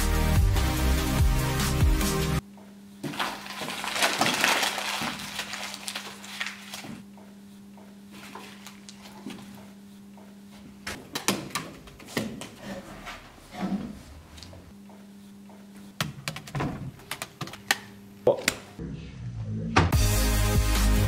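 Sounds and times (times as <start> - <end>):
room tone hum: 2.4 - 19.9
paper crumpling: 3.1 - 7.0, 8.2 - 9.4.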